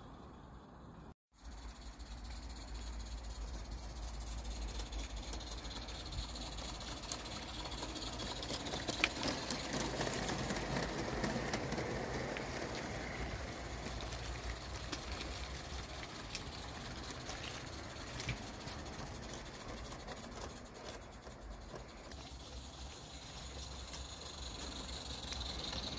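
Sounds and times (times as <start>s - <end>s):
model train wheels rumbling on rail: 0.0s - 25.9s.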